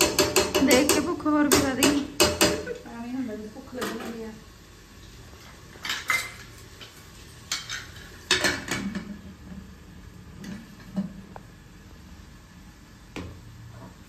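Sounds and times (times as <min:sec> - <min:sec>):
metal utensils and pots clattering: 0:00.0 - 0:02.8, 0:05.4 - 0:09.6.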